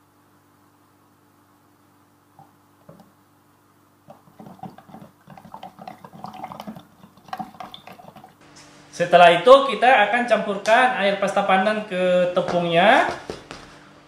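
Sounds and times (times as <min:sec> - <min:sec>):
liquid swishing and splashing: 0:04.1 - 0:08.4.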